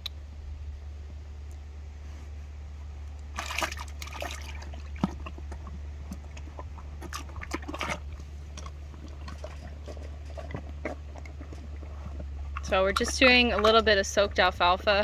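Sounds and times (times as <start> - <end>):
steady low hum: 0.0 - 15.0
horse slurping water: 3.2 - 15.0.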